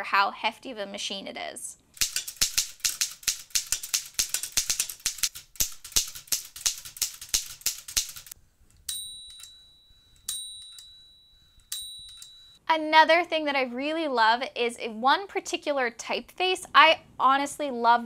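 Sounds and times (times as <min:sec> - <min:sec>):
typewriter bell ding: 0:02.0 - 0:08.3, 0:08.9 - 0:12.6
typewriter typing clacks: 0:02.0 - 0:08.4.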